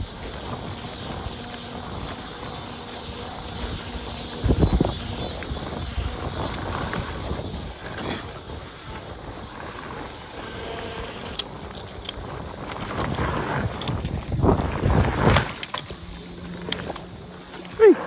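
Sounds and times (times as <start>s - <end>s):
bike rattling and clicking: 0.0s - 18.0s
tyres rumbling over dirt: 0.0s - 18.0s
wind on microphone: 0.0s - 18.0s.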